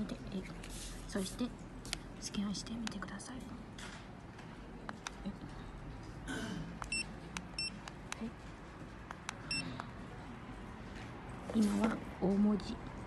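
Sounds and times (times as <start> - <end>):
barcode scanner beeps: 6.8 - 7.8, 9.4 - 9.7.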